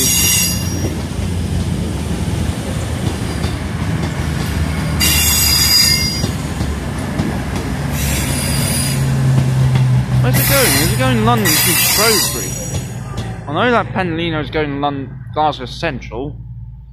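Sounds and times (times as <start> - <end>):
metallic wheel squeal: 0.0 - 0.9, 5.0 - 6.4, 10.4 - 13.4
diesel train engine humming: 0.0 - 16.9.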